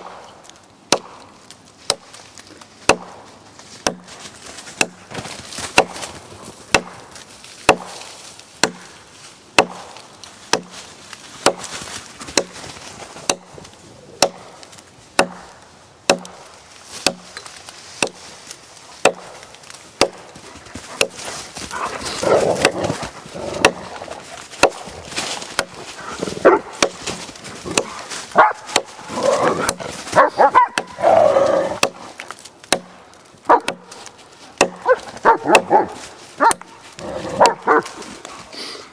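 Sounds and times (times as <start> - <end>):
hatchet chopping into a log: 0.9 - 1.3, 1.9 - 2.2, 2.8 - 3.2, 3.8 - 4.1, 4.8 - 6.1, 6.7 - 7.0, 7.6 - 8.9, 9.6 - 10.8, 11.4 - 11.7, 12.3 - 13.5, 14.2 - 17.4, 18.0 - 18.2, 19.0 - 20.4, 21.0 - 21.2, 22.6 - 22.8, 23.6 - 25.8, 26.7 - 29.0, 31.8 - 33.0, 33.6 - 35.7
dog barking: 26.4 - 26.7, 28.4 - 28.7, 30.1 - 30.9, 33.5 - 33.8, 34.8 - 36.7, 37.4 - 37.9.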